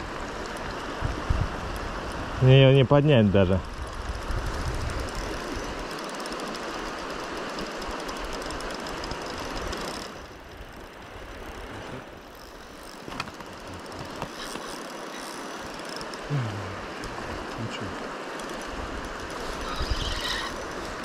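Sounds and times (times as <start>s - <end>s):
river current rushing: 0.0s - 21.0s
fishing reel ticking: 0.2s - 17.2s, 18.0s - 21.0s.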